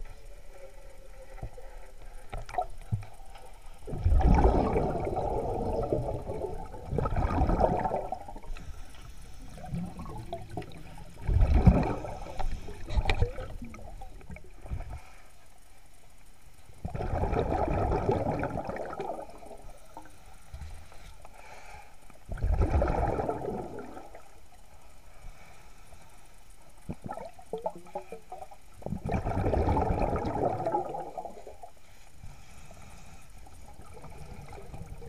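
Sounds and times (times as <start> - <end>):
diver's exhaled bubbles underwater: 2.2 - 8.7, 9.4 - 14.9, 16.8 - 20.1, 22.3 - 24.4, 26.8 - 31.7, 33.7 - 35.0.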